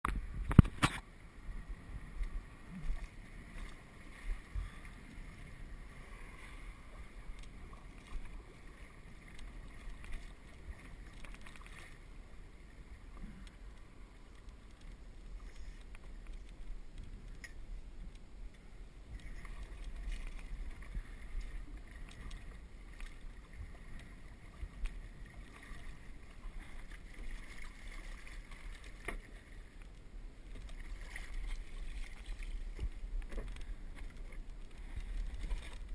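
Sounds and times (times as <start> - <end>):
wind rumble on microphone: 0.0 - 11.6
water lapping against a hull: 0.0 - 35.9.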